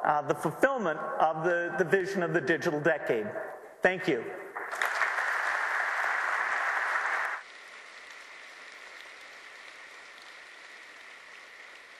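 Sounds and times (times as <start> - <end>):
large audience applauding: 4.6 - 11.9.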